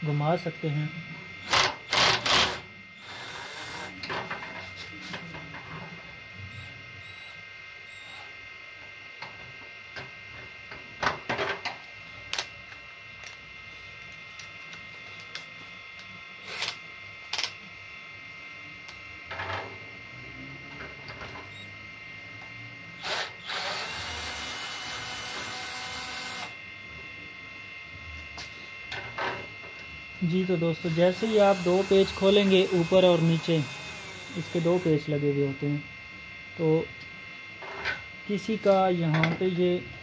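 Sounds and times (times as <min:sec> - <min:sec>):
electric drill running: 0:01.4 - 0:04.0, 0:06.5 - 0:08.3, 0:22.9 - 0:26.6, 0:30.6 - 0:35.1.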